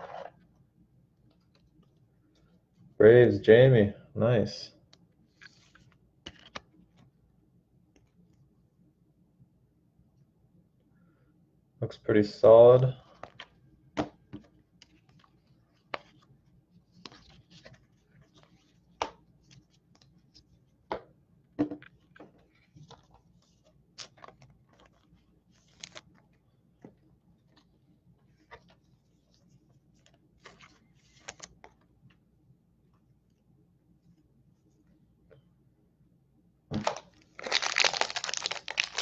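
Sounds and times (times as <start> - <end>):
card rustles: 5.3 - 7.1, 16.9 - 20.6, 21.8 - 31.9, 36.8 - 39.0.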